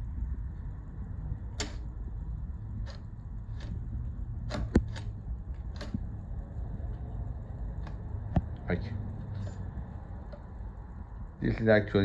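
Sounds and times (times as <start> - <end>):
steady low hum: 0.0 - 12.0
metal parts clicking and tapping: 1.6 - 2.0, 2.7 - 6.2, 9.2 - 10.6.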